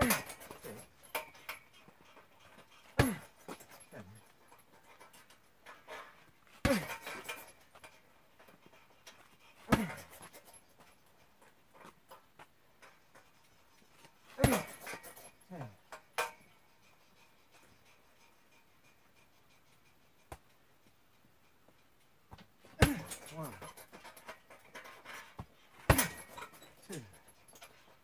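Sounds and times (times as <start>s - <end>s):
punching bag thuds: 22.8s - 23.2s, 25.8s - 26.4s.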